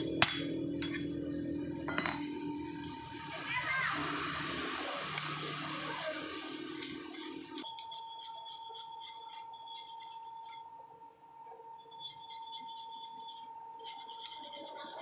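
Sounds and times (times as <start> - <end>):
motor whine: 0.0 - 7.6.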